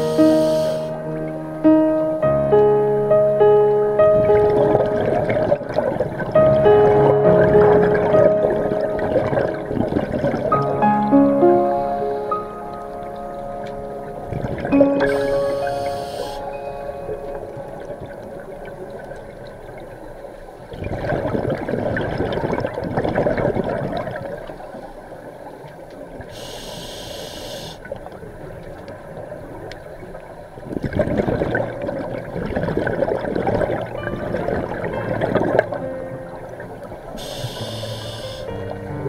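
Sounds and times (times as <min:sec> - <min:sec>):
short high hiss: 0:00.0 - 0:01.0, 0:15.0 - 0:16.5, 0:26.4 - 0:27.8, 0:37.2 - 0:38.5
underwater bubbles rushing: 0:03.6 - 0:26.4, 0:27.8 - 0:39.0.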